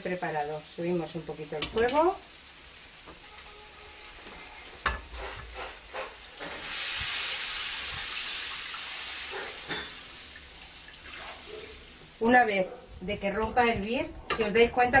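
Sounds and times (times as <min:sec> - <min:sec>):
stock pouring into hot pan: 0:01.9 - 0:11.5.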